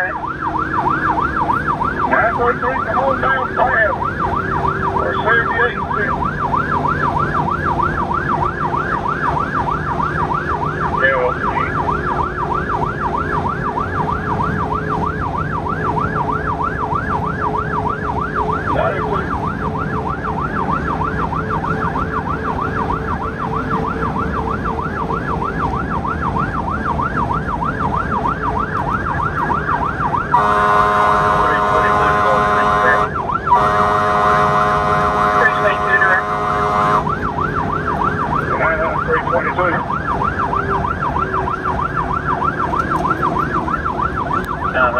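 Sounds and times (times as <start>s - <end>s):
engine hum: 0.0s - 44.9s
fire truck siren yelping: 0.0s - 44.9s
horn blast: 30.3s - 37.2s.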